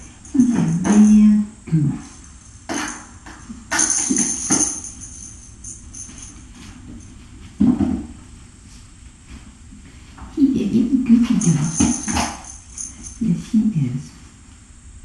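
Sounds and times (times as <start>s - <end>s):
cat toy jingling and rattling: 0.0s - 1.4s, 2.0s - 7.2s, 11.2s - 13.5s.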